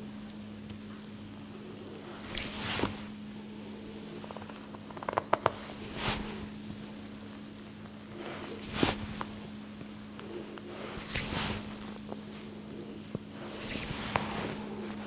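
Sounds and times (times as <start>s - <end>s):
steady low hum: 0.0s - 15.0s
hands rubbing skin or hair: 1.9s - 6.8s, 7.8s - 15.0s.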